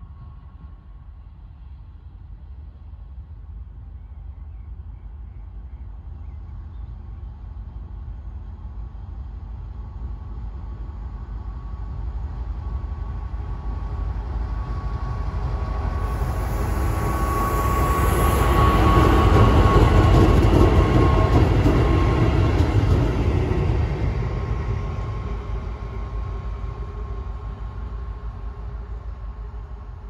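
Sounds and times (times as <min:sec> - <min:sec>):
diesel locomotive engines rumbling: 0:00.0 - 0:30.0
high whine: 0:13.0 - 0:30.0.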